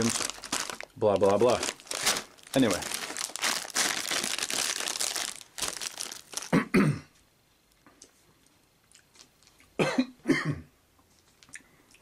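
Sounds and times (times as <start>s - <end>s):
plastic snack bag crinkling: 0.0s - 6.6s, 9.1s - 9.6s
person coughing: 6.5s - 7.2s, 9.8s - 10.7s.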